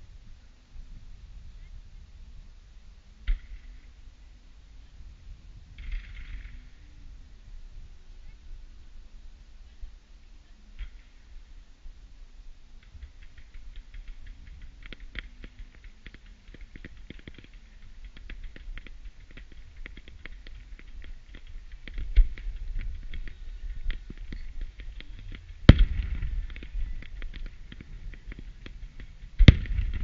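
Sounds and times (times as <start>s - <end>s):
fireworks crackling: 12.8s - 30.0s
firework shell bangs: 25.2s - 30.0s.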